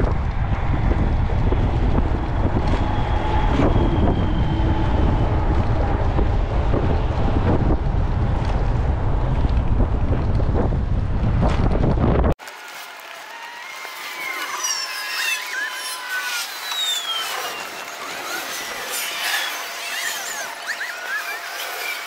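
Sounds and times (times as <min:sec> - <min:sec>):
wind buffeting microphone: 0:00.0 - 0:12.4.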